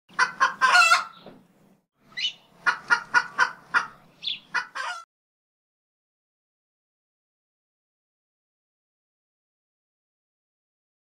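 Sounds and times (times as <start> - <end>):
higher bird chirps: 2.0 - 2.6, 3.2 - 4.6
bird calling sharply: 2.1 - 2.5, 3.2 - 5.0.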